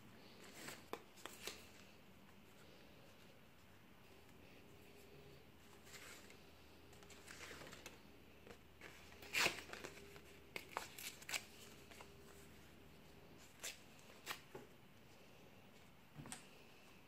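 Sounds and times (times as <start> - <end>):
paper rustling: 5.6 - 12.4.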